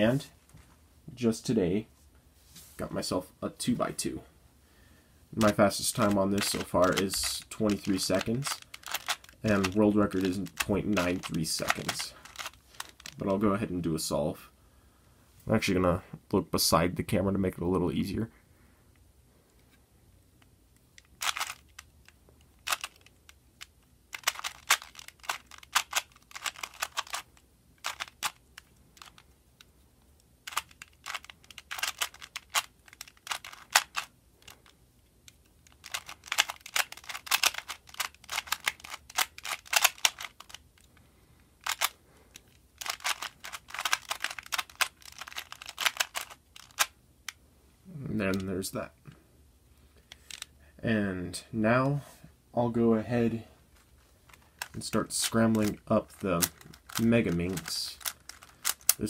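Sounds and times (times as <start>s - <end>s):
puzzle cube clicking: 5.4s - 13.2s, 20.8s - 29.7s, 30.4s - 40.9s, 41.6s - 47.4s, 50.0s - 50.5s, 54.3s - 59.0s.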